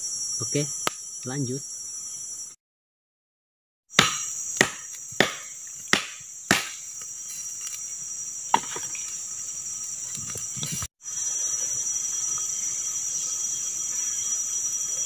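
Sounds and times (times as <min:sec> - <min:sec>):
forest insects droning: 0:00.0 - 0:02.6, 0:03.9 - 0:15.0
blade chopping into wood: 0:03.9 - 0:06.9.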